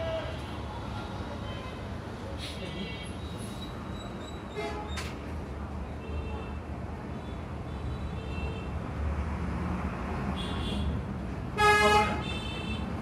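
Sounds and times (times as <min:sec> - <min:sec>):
loud horn-like honk: 0:11.6 - 0:12.7.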